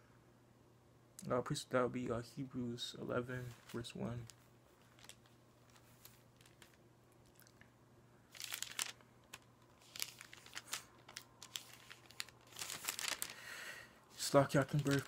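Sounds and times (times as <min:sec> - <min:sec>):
faint steady hum: 0:00.0 - 0:15.0
paper pages rustling: 0:03.4 - 0:06.8, 0:08.3 - 0:13.4, 0:14.1 - 0:15.0.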